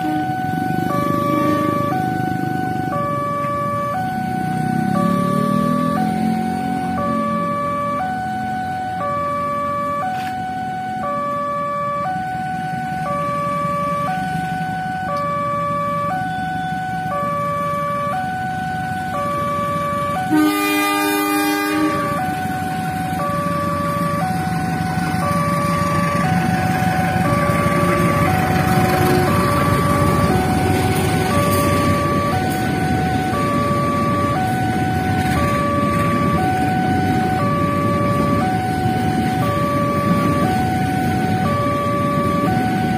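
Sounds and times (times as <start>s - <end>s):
locomotive horn: 0.0s - 2.2s, 20.2s - 22.5s
level crossing warning bell: 0.0s - 42.9s
train rumbling past: 19.6s - 42.9s.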